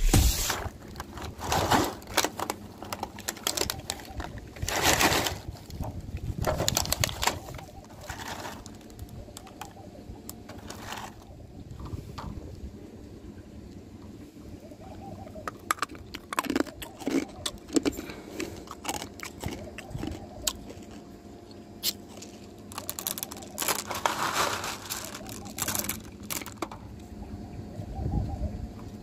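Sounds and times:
hard candies clicking and rustling: 0.8 - 9.8, 15.4 - 21.1, 21.8 - 26.9.

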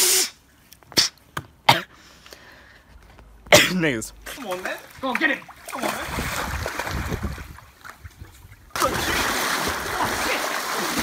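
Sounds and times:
pool water splashing: 4.0 - 11.0.

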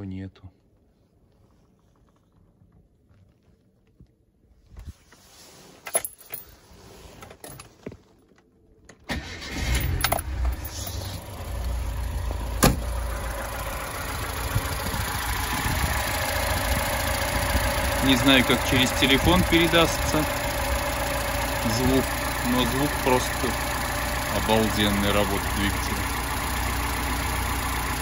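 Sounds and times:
car engine starting and idling: 8.9 - 28.0.

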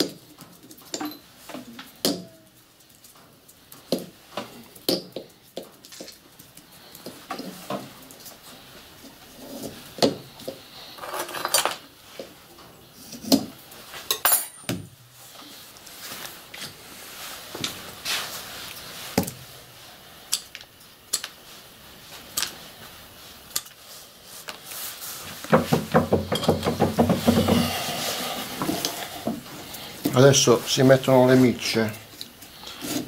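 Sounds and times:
hand tools clinking and knocking: 0.0 - 2.4, 13.2 - 14.9, 25.3 - 30.6
rattling and rubbing: 24.7 - 30.2.

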